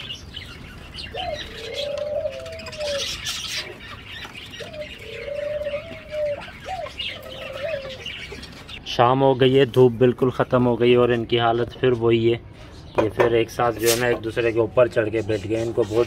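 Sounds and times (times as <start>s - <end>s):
dove cooing: 0.0s - 8.8s
small birds chirping: 0.0s - 16.0s.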